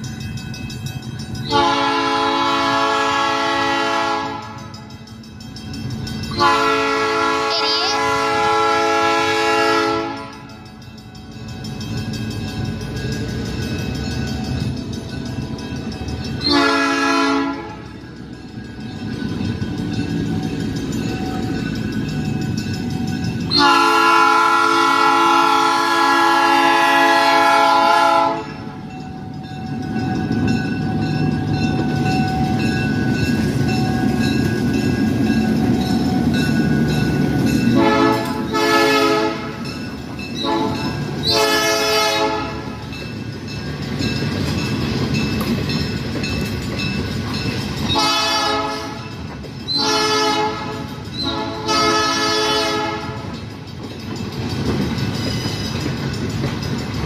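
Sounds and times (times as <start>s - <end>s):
train engine and wheels rumbling: 0.0s - 57.0s
locomotive air horn blasts: 1.5s - 4.7s, 6.4s - 10.5s, 16.5s - 17.8s, 23.5s - 28.6s, 37.8s - 39.6s, 40.4s - 42.7s, 48.0s - 49.1s, 49.8s - 53.2s.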